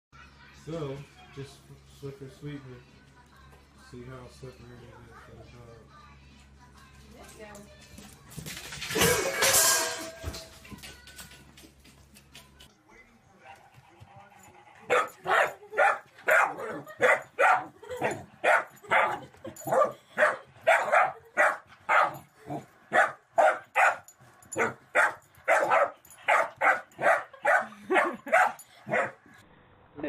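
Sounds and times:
puppy barking: 14.8 - 29.2.

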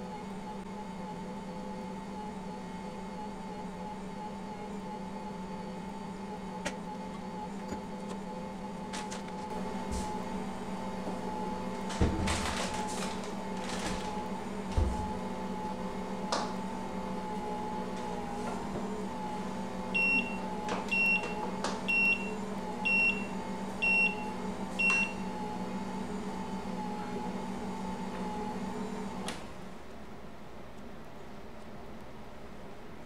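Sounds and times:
stand mixer motor hum: 0.0 - 29.7
kitchen timer beeping: 20.0 - 25.2.

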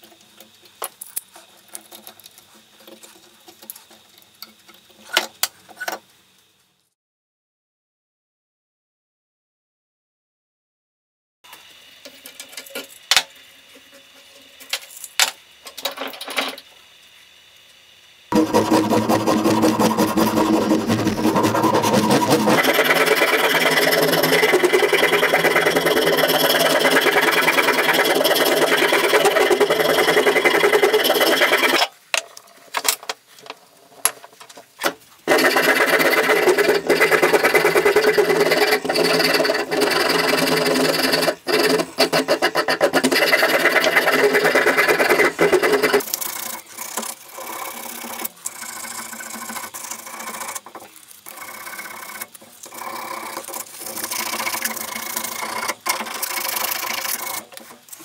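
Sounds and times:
file rasping on wood: 18.3 - 31.8, 35.3 - 50.7, 51.3 - 57.6.

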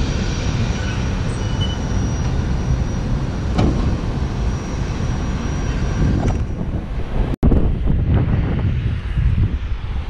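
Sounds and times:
faint high whine: 0.0 - 6.2
distant jet engines rumbling: 0.0 - 10.0.

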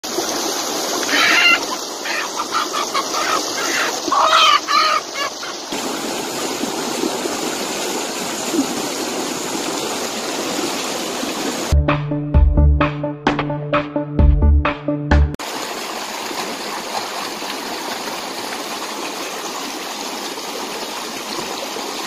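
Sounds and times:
rushing mountain stream: 0.0 - 11.8, 15.4 - 22.0
hen clucking and squawking: 1.1 - 5.7.

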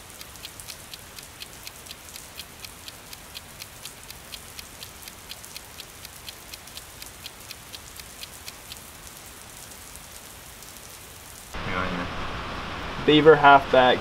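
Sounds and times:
mechanical timer ticking: 0.0 - 9.5
steady hiss: 0.0 - 14.0.

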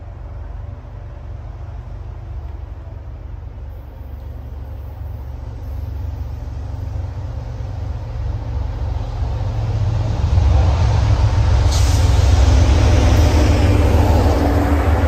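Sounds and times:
diesel locomotive engine rumble: 0.0 - 15.0
train wheel noise: 0.0 - 15.0.

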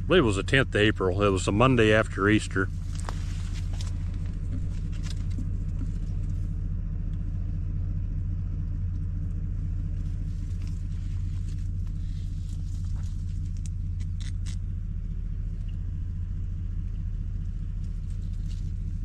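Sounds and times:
engine running with low hum: 0.0 - 19.0
faint ticks and rustles: 17.4 - 19.0.

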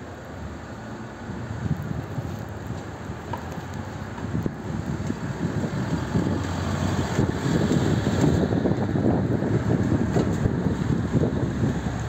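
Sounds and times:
wind buffeting microphone: 1.3 - 12.0
car driving past: 5.2 - 12.0.

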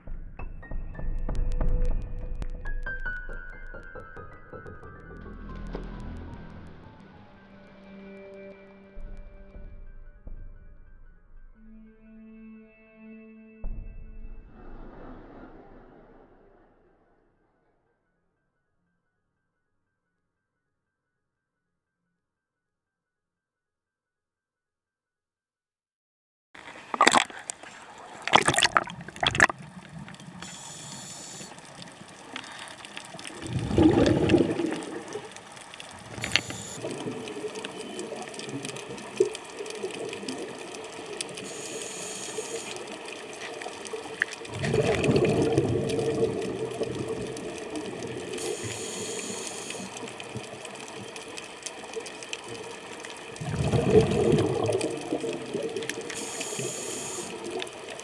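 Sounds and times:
rumble of exhaled bubbles: 14.4 - 17.1, 26.9 - 58.0
sharp splashes: 26.7 - 56.4
regulator hiss on inhale: 30.4 - 33.2, 36.0 - 37.1, 41.2 - 43.7, 48.1 - 50.3, 56.0 - 57.7.

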